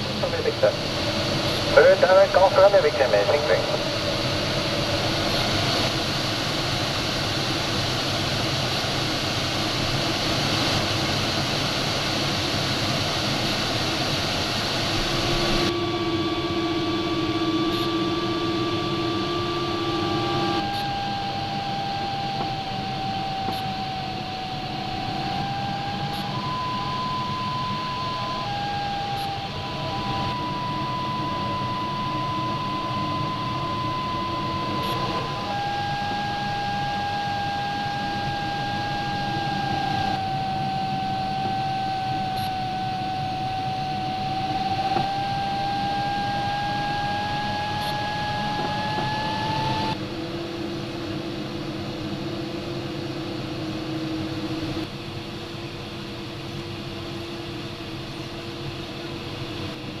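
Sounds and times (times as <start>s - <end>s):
variometer audio tone: 0.0s - 6.0s, 14.9s - 50.6s.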